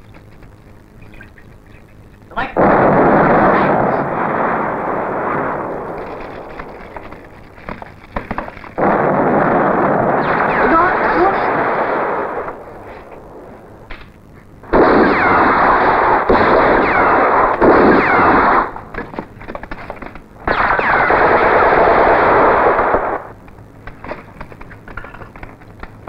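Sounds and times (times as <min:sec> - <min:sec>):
machine-gun fire: 0:02.5 - 0:26.0
single gunshots: 0:02.6 - 0:06.7, 0:08.2 - 0:13.1, 0:14.7 - 0:19.2, 0:20.4 - 0:23.3.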